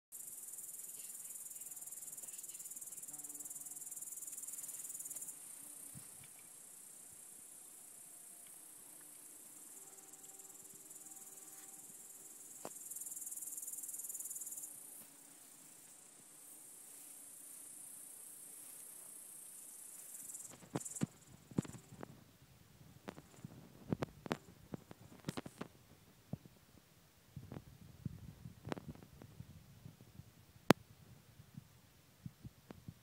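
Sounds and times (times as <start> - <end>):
insects chirring: 0.2 - 22.2.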